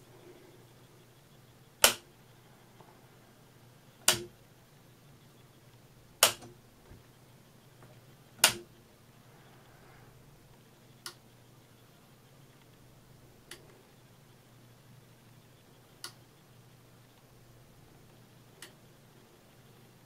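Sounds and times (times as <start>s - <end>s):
light switch clicking: 1.8s - 2.0s, 4.0s - 4.3s, 8.4s - 8.7s.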